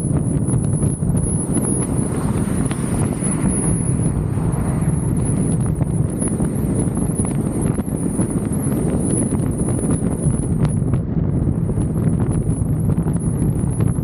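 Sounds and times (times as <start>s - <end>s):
road and tyre noise: 0.0s - 14.0s
thin wavering high whine: 0.0s - 14.0s
wind buffeting microphone: 0.0s - 14.0s
small crackles and knocks: 11.7s - 14.0s.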